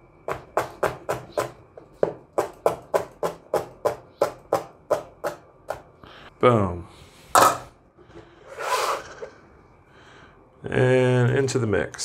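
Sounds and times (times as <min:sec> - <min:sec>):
knife chopping on plastic board: 0:00.2 - 0:05.9.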